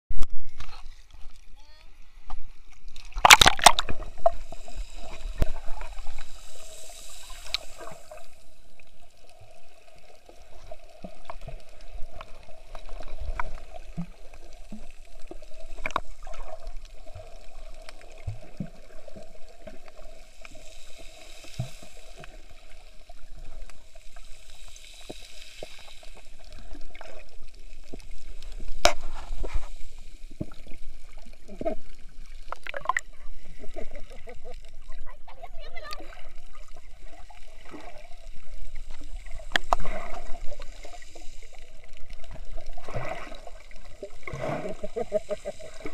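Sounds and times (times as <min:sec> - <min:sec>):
muffled underwater sloshing and bubbling: 0:00.2 - 0:45.9
underwater clicks and knocks: 0:03.0 - 0:04.4, 0:15.8 - 0:16.4, 0:32.5 - 0:33.1
splash: 0:03.0 - 0:08.3, 0:38.8 - 0:45.9.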